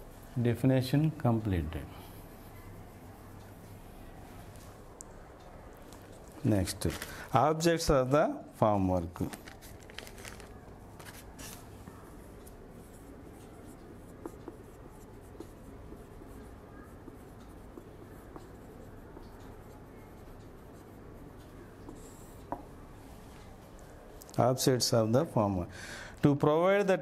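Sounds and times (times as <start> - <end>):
low room hum: 0.0 - 27.0
marker scratching on whiteboard: 2.3 - 4.2, 10.4 - 22.8.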